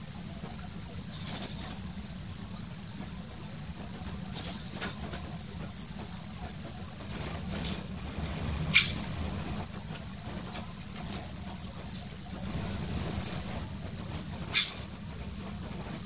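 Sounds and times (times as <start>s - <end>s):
small birds chirping: 1.0s - 2.7s, 4.0s - 9.2s
woodpecker call: 8.7s - 9.0s, 14.5s - 14.9s.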